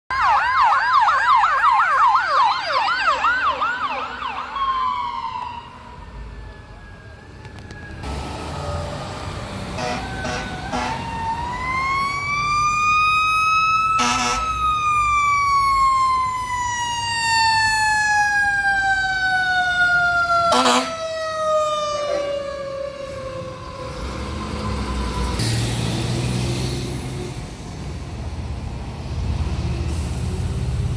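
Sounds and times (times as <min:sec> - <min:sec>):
siren yelping: 0:00.1 - 0:08.7, 0:09.8 - 0:25.4
fire engine horn blasts: 0:09.7 - 0:11.2, 0:13.9 - 0:14.6, 0:20.5 - 0:22.6.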